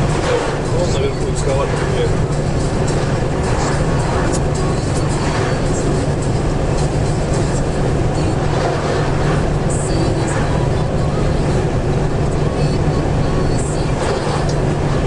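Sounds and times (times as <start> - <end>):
engine drone: 0.0 - 15.0
tyres rushing on asphalt: 0.0 - 15.0.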